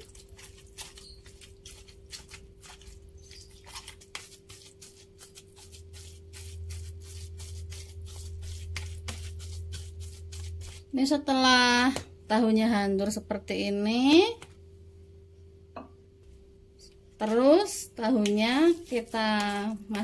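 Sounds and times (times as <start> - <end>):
wet squishes of crumbling tofu: 0.0 - 10.8
faint steady hum: 0.0 - 20.0.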